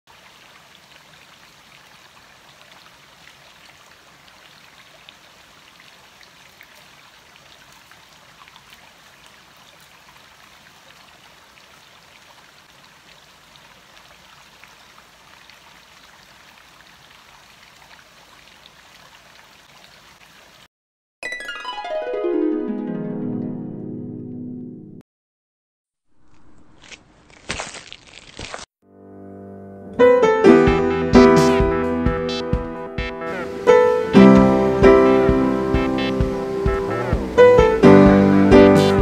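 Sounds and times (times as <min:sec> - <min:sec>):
stream trickling over rocks: 0:00.1 - 0:20.7.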